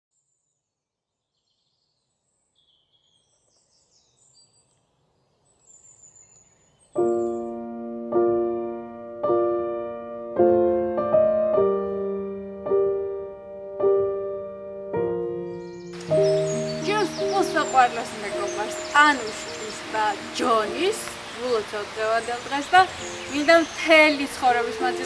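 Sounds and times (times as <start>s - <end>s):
faint bird chirps: 0.2s - 7.6s, 15.5s - 25.0s
piano slow chords: 7.0s - 25.0s.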